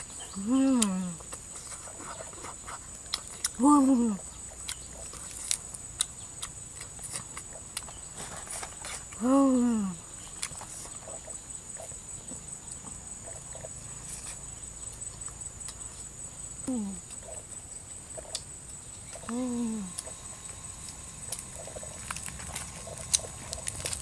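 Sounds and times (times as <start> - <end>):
woman humming: 0.2 - 1.3, 3.6 - 4.3, 9.2 - 10.0, 16.6 - 17.0, 19.2 - 20.1
eating clicks and smacks: 0.8 - 3.6, 19.1 - 24.0.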